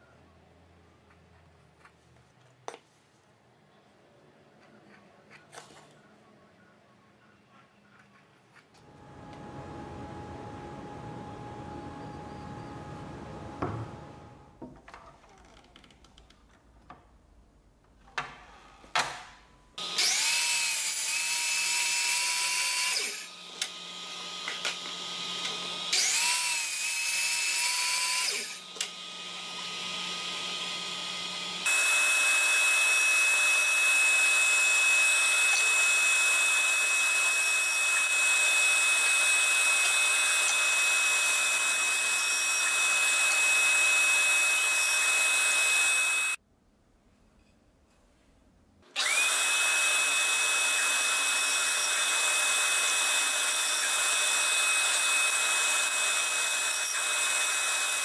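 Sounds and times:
bandsaw high whine: 8.8 - 14.6
miter saw cutting plywood: 8.8 - 14.6, 19.8 - 46.4, 49.0 - 58.0.

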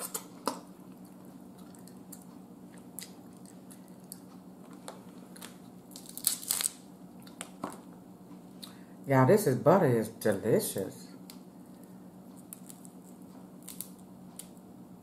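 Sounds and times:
soft chewing: 0.1 - 5.8, 7.1 - 7.5, 11.6 - 14.7
crab shell cracking: 5.3 - 7.6, 12.4 - 14.6.

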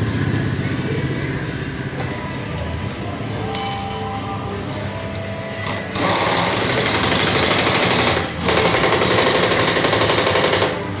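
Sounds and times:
pneumatic impact wrench rattling: 5.7 - 10.8.

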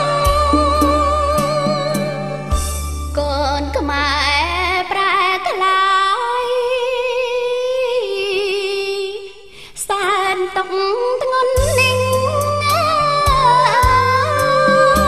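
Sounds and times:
light musical accompaniment: 0.0 - 5.0, 10.2 - 15.0.

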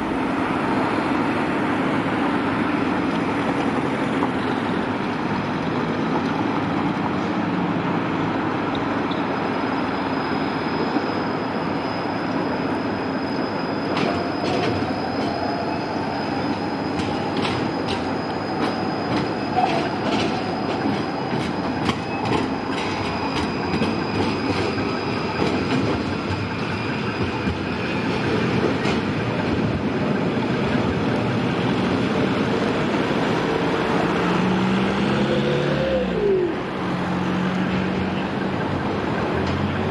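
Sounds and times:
tram wheels clattering over rails: 0.0 - 39.9
high wheel squeal: 8.1 - 39.9.

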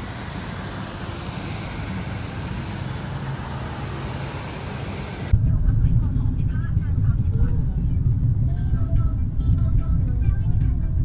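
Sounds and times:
tyre hiss on wet road: 0.0 - 5.3
engine rumble of traffic: 0.0 - 11.0.

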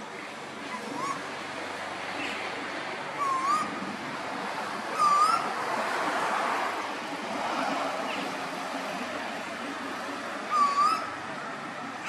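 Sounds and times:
bird whistled call: 3.2 - 3.7, 5.0 - 5.4, 10.5 - 11.1.

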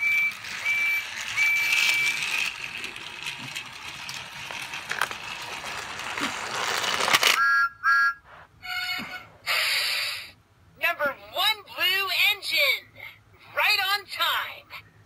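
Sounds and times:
toy train motor whirring: 0.0 - 7.4.

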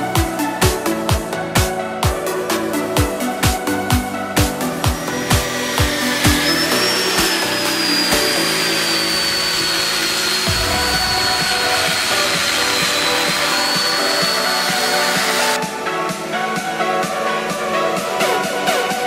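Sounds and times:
electronic music: 0.0 - 19.0
power tool whining: 5.0 - 15.6.

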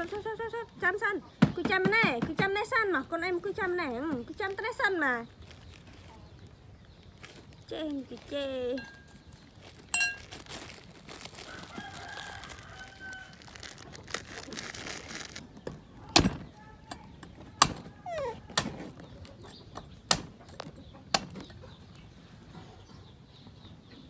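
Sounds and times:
cleaver chopping coconut: 20.0 - 21.4.

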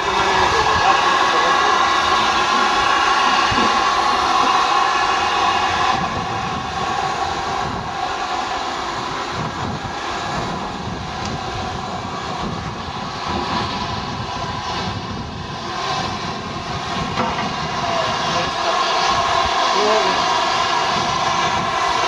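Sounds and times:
steam locomotive hissing: 0.0 - 22.0.

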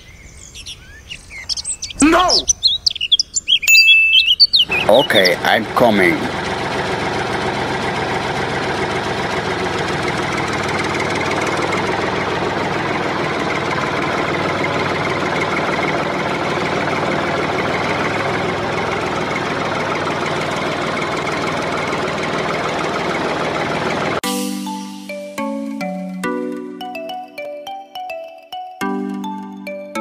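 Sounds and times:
motor droning: 4.7 - 24.2.

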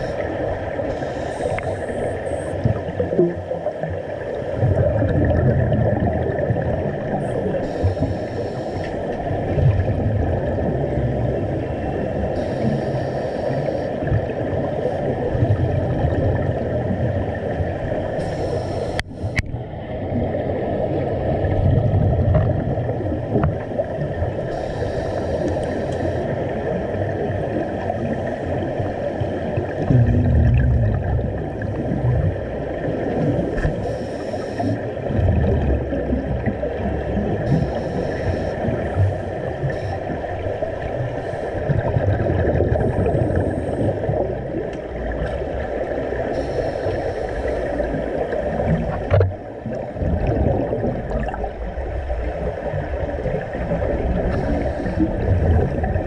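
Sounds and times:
muffled rumble of exhaust bubbles: 0.0 - 8.2, 8.9 - 13.0, 13.6 - 18.2, 18.9 - 24.7, 25.3 - 56.0
regulator hiss: 0.9 - 2.6, 7.6 - 9.1, 12.4 - 14.0, 18.2 - 19.4, 24.5 - 26.3, 33.7 - 34.8, 37.4 - 40.4, 46.2 - 48.3, 54.2 - 55.2.

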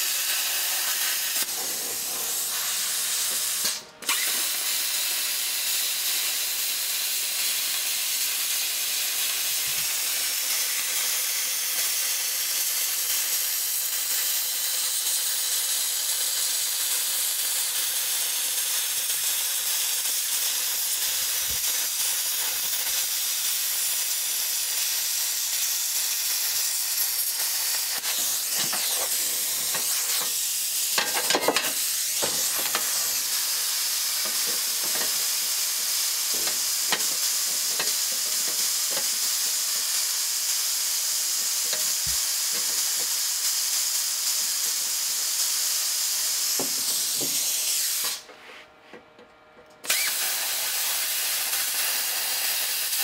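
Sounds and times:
welding arc hissing: 0.0 - 48.3, 49.8 - 53.0.

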